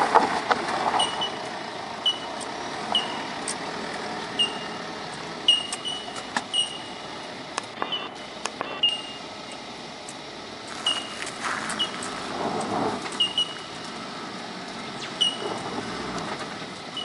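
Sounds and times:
vehicle rolling over dirt track: 0.0s - 17.0s
high squeaks: 1.0s - 3.4s, 4.3s - 4.8s, 5.5s - 7.0s, 10.8s - 12.1s, 13.1s - 13.8s, 15.0s - 15.6s.

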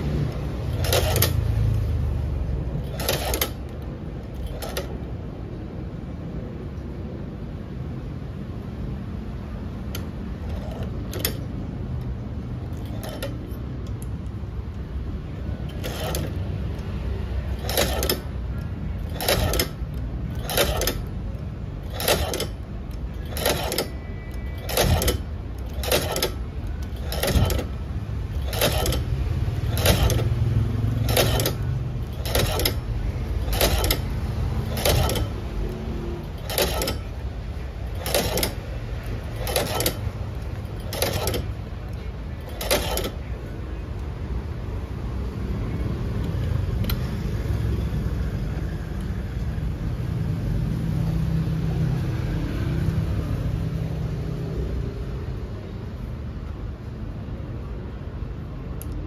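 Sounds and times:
sewing machine needle clacking: 0.3s - 1.9s, 2.7s - 5.0s, 9.9s - 11.5s, 12.7s - 14.3s, 15.6s - 16.8s, 17.5s - 43.3s.

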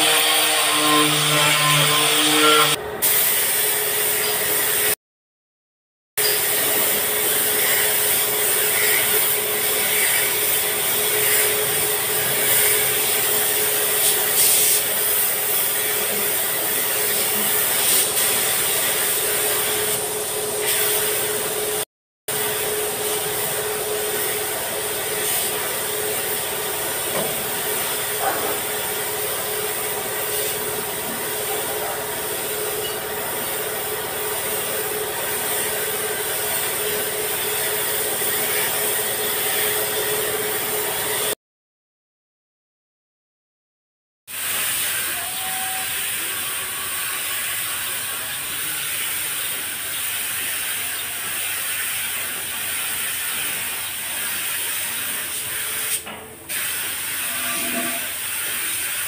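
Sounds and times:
spray gun hissing: 3.0s - 4.8s, 6.4s - 20.0s, 25.1s - 32.7s, 34.3s - 39.0s, 51.4s - 57.5s
steady tone: 57.2s - 58.2s.

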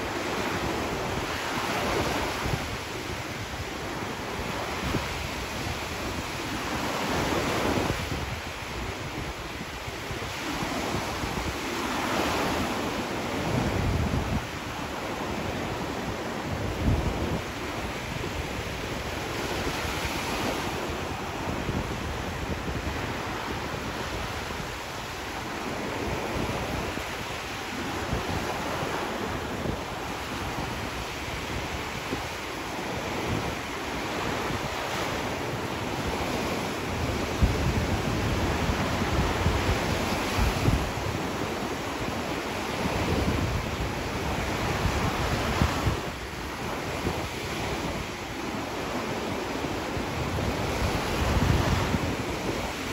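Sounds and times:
small waves washing on shore: 0.0s - 52.9s
wind rumble on microphone: 0.0s - 52.9s.

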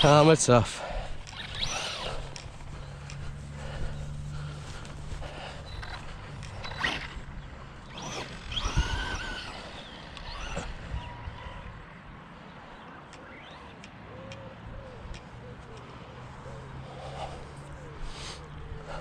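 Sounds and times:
electric motor whining: 1.2s - 4.6s, 5.4s - 11.8s.

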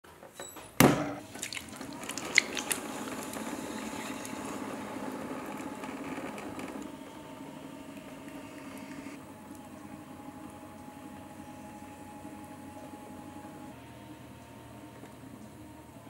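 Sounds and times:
wet clay swishing under hands: 1.3s - 2.8s.

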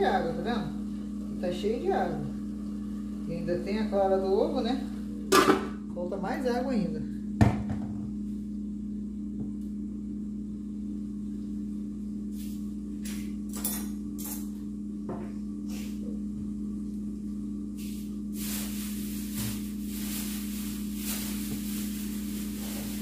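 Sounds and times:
steady low hum: 0.0s - 23.0s
food sizzling: 17.8s - 23.0s.

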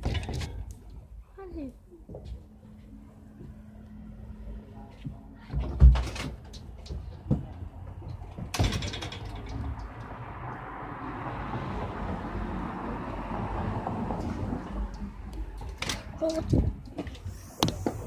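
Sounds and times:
vehicle passing by: 2.8s - 5.4s, 9.2s - 15.8s.

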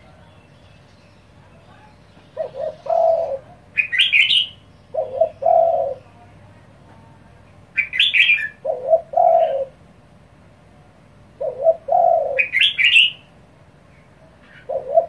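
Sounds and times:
dove cooing: 1.5s - 6.4s, 7.8s - 9.8s, 11.4s - 13.3s, 14.2s - 15.0s.

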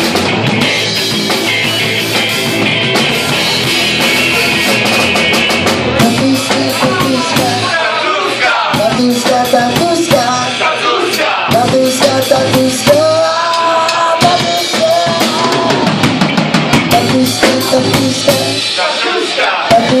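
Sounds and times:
electric guitars: 0.0s - 7.8s, 8.7s - 20.0s
drum kit: 0.0s - 20.0s
person singing: 6.0s - 8.0s, 8.7s - 16.0s, 16.9s - 20.0s.

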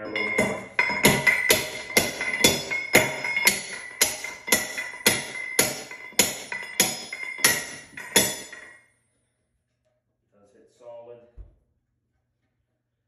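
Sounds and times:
ringing metal knocks: 0.0s - 8.8s.

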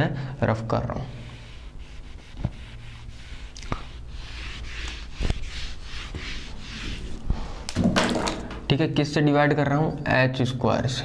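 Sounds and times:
duster rubbing whiteboard: 1.0s - 7.6s.

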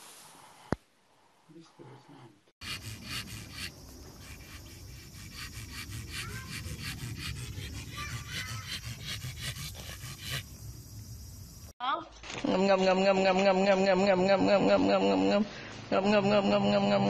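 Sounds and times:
dog panting: 2.6s - 10.8s.

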